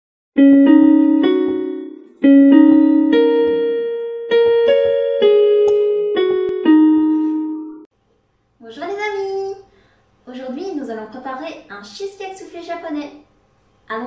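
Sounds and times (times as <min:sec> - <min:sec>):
piano-like keyboard jingle: 0:00.4 - 0:07.9.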